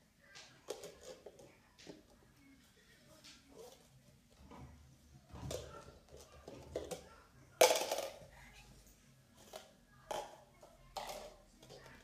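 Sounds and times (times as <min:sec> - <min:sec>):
cups clattering: 0:05.3 - 0:08.3, 0:09.4 - 0:12.0.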